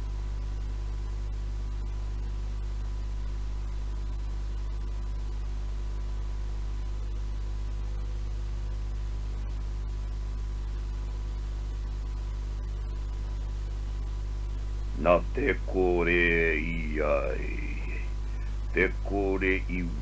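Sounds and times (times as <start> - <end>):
mains hum: 0.0 - 20.0
tape hiss: 0.0 - 20.0
thin steady tone: 15.0 - 20.0.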